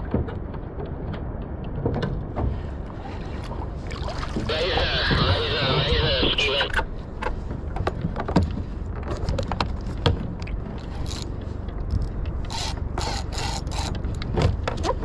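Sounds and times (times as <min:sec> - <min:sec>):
wind: 0:00.0 - 0:15.0
water wash: 0:02.8 - 0:06.7
fishing reel cranking: 0:11.0 - 0:11.2, 0:12.5 - 0:14.0.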